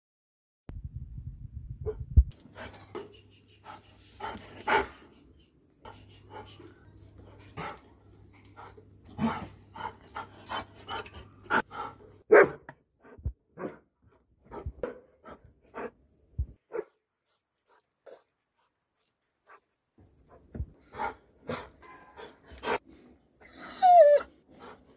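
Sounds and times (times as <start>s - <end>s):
dog barking: 12.3s - 12.6s, 16.7s - 17.0s.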